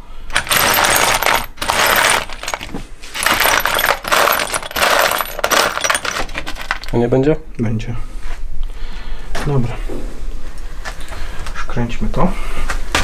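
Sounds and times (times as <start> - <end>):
metal parts clattering in plastic case: 0.3 - 7.0.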